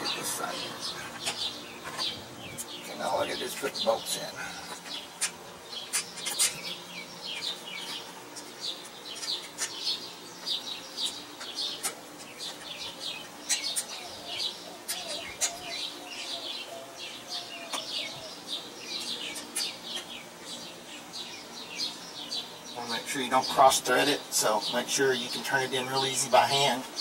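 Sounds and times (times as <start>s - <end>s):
small birds chirping: 0.0s - 27.0s
faint wavering bird call: 13.5s - 20.1s.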